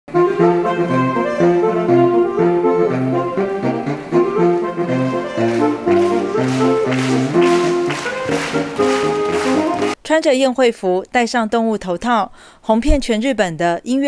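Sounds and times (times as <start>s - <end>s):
saxophone quartet playing: 0.1s - 10.0s
rhythmic swishing strokes: 5.1s - 10.0s.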